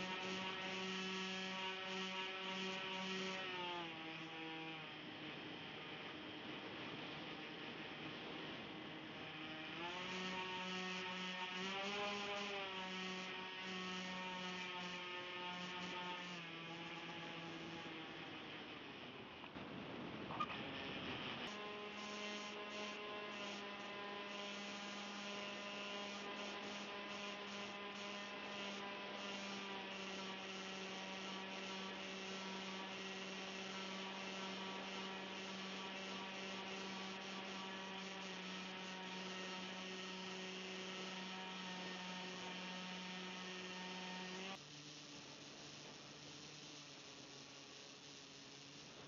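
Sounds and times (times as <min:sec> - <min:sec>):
electric motors humming: 0:00.0 - 0:18.9, 0:20.6 - 0:49.0.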